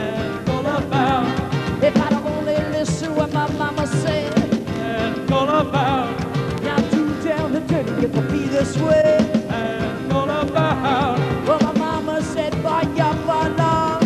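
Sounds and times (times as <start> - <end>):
live band playing: 0.0 - 14.0.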